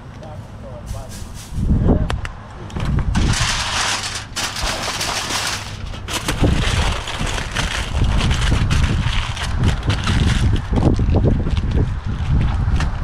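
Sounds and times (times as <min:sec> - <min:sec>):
gusty wind on microphone: 0:01.2 - 0:04.2, 0:05.7 - 0:13.0.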